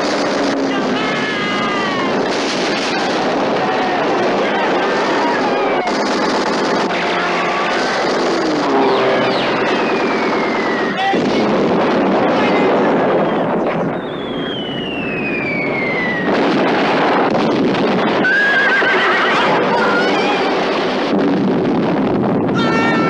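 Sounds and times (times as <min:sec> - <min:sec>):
aircraft: 0:00.0 - 0:23.0
explosions: 0:00.0 - 0:23.0
falling bomb whistles: 0:08.6 - 0:11.0, 0:13.2 - 0:16.3
horses whinnying: 0:18.2 - 0:20.5.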